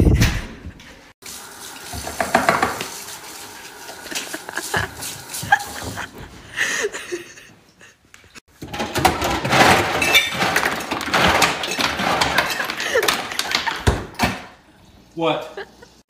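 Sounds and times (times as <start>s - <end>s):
dishes knocking in a sink: 2.0s - 2.9s
rummaging in a freezer: 8.5s - 14.5s.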